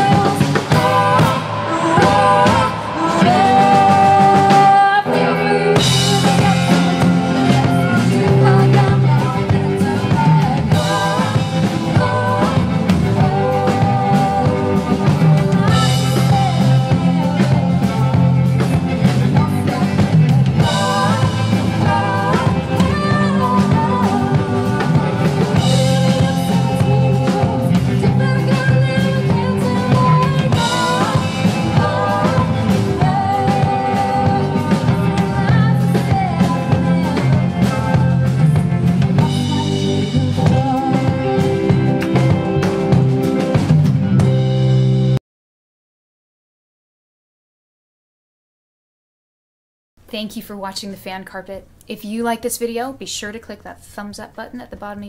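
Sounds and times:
woman singing backing vocals: 0.0s - 41.6s
woman singing lead: 0.0s - 42.9s
live band playing: 0.0s - 45.2s.

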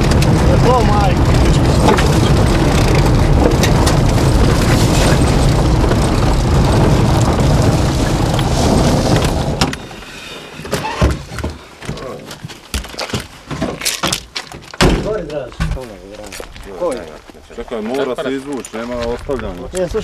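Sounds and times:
car engine and road noise: 0.0s - 11.8s.

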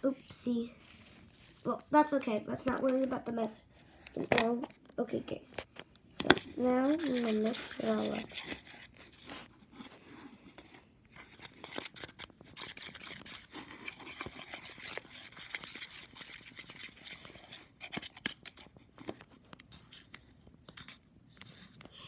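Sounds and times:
stick scraping plastic bowl: 6.1s - 18.6s.

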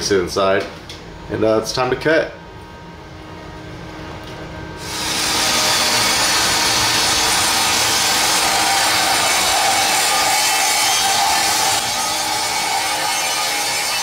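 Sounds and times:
circular saw cutting board: 4.8s - 14.0s.

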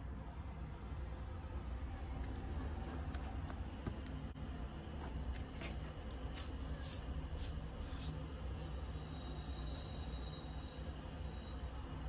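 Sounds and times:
low steady hum: 0.0s - 12.0s
paper sleeve rustling and scraping: 6.3s - 8.1s.

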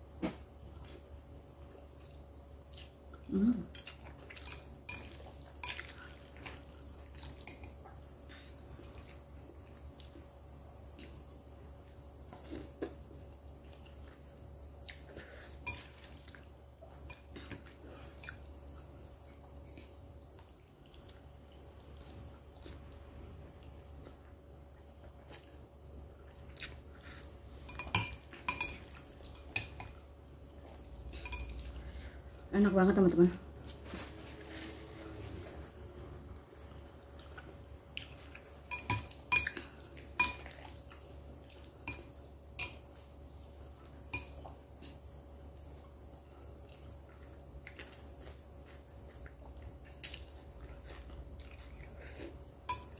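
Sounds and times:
utensils clinking on ceramic bowl: 4.4s - 5.9s, 27.6s - 30.0s, 31.2s - 31.7s, 38.6s - 39.6s, 52.7s - 52.9s.

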